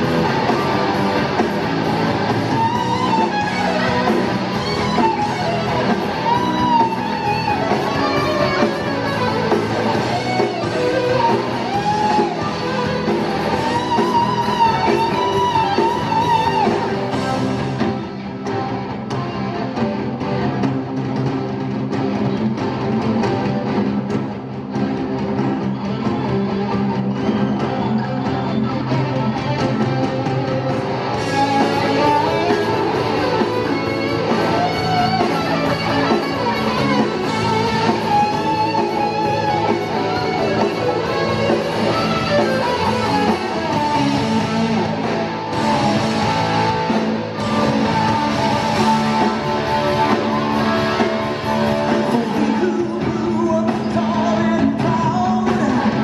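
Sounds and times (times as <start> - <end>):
electric guitar solo: 0.0 - 20.6, 24.8 - 54.4
drums and bass: 0.0 - 56.0
person singing: 51.6 - 56.0.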